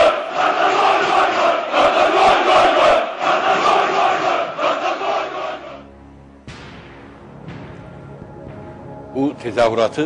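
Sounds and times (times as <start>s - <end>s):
game show background music: 5.0s - 10.0s.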